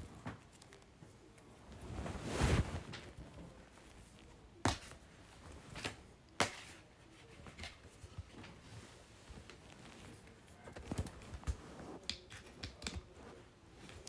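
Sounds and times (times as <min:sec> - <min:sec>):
rustling handling noise: 0:00.0 - 0:14.0.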